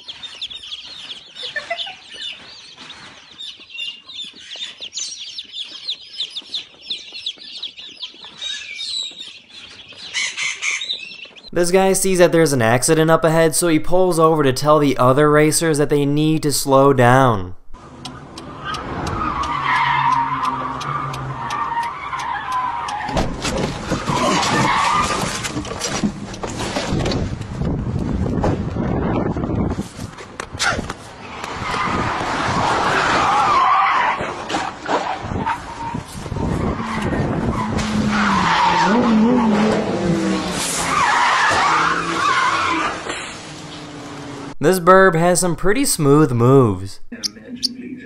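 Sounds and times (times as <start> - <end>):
tyres skidding and squealing: 17.8 - 27.1, 30.6 - 44.6
race car engines slowing: 17.8 - 28.8
wind buffeting and rustling: 22.2 - 33.3, 34.3 - 38.3.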